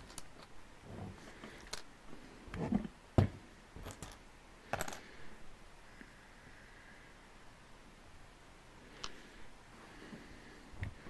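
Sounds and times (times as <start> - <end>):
plastic bricks clicking: 0.0 - 0.5, 1.6 - 1.9.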